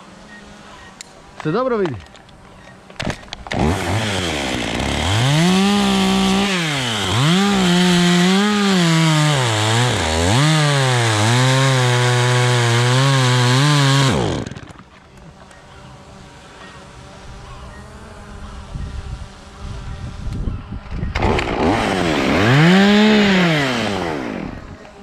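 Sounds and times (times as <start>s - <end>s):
chainsaw cutting wood: 3.0s - 15.0s, 21.0s - 25.0s.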